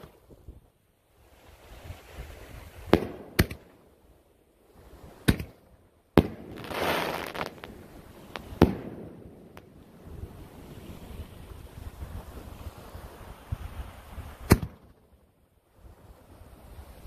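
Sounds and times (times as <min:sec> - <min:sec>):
firework booms: 0:02.8 - 0:03.7, 0:06.2 - 0:10.0
firework rushing hiss: 0:06.2 - 0:09.0.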